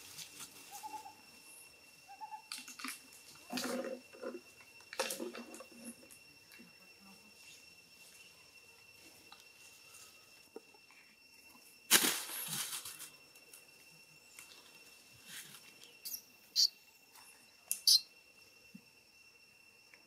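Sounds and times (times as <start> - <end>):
forest insects droning: 0.0 - 20.0.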